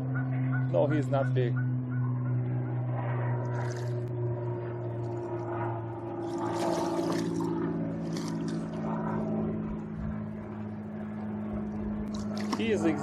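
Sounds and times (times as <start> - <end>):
low engine hum: 0.0 - 13.0
fish splashing in water: 3.5 - 4.0, 6.2 - 8.9, 12.1 - 13.0.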